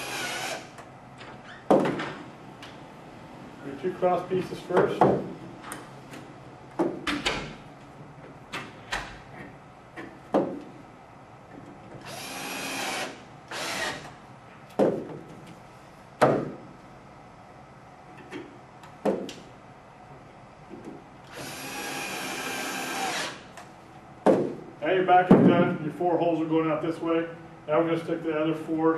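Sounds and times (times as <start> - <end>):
cordless drill driving screws: 0.0 - 0.8, 12.0 - 14.1, 21.3 - 23.4.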